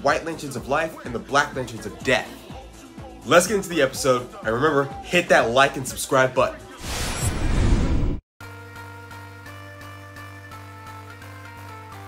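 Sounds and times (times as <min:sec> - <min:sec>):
background music with light beat: 0:00.0 - 0:06.8, 0:08.4 - 0:12.0
rushing whoosh transition effect: 0:06.8 - 0:08.2.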